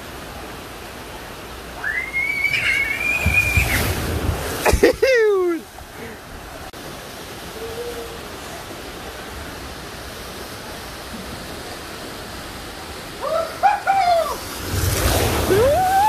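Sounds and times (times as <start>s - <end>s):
water rushing down a waterslide: 0.0s - 16.0s
rider splashing into water: 2.2s - 5.6s, 14.3s - 16.0s
person crying out: 4.8s - 5.6s.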